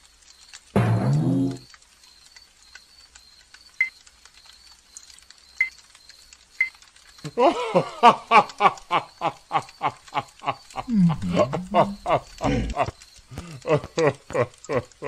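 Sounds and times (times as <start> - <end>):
campfire crackling: 0.0 - 1.0, 1.6 - 15.0
man laughing loudly: 7.3 - 15.0.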